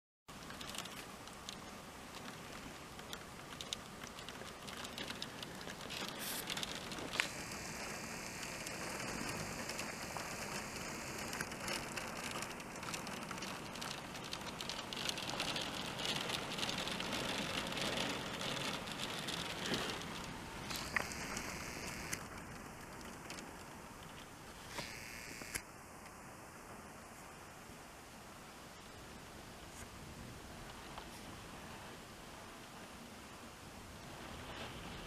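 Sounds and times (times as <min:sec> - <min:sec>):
hail and rain pattering on wood: 0:00.4 - 0:24.1.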